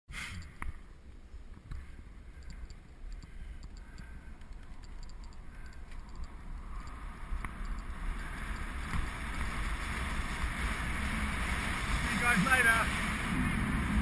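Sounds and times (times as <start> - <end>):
light clicks: 0.4 - 9.0
wind buffeting microphone: 4.2 - 14.0
bike tyre rumble: 5.4 - 14.0.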